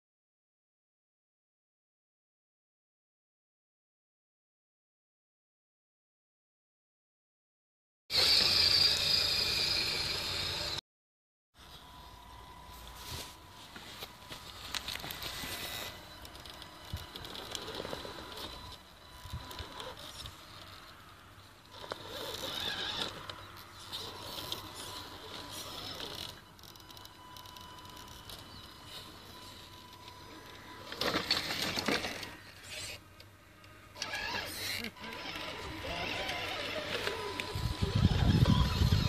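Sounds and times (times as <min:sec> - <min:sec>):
toy truck motor whirring: 0:08.1 - 0:10.8, 0:14.1 - 0:39.0
tyres crunching over dirt: 0:12.9 - 0:18.8.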